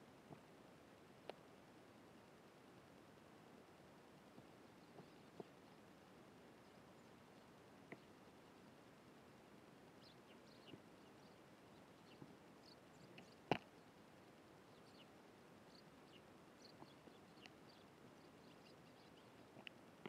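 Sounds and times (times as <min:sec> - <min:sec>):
sparrows chirping: 0:04.6 - 0:05.8, 0:10.0 - 0:13.9, 0:14.6 - 0:19.7.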